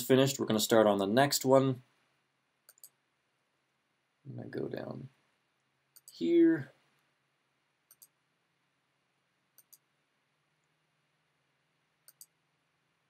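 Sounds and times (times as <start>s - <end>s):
computer mouse clicks: 2.6s - 3.0s, 5.9s - 6.2s, 7.9s - 8.2s, 9.6s - 9.9s, 12.0s - 12.4s.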